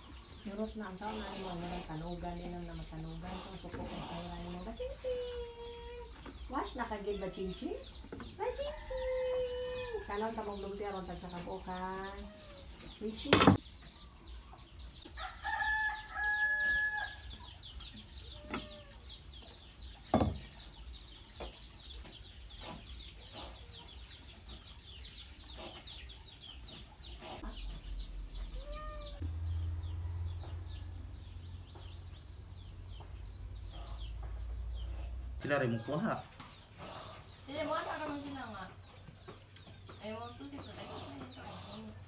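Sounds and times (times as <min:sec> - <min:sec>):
low hum: 0:27.6 - 0:35.4.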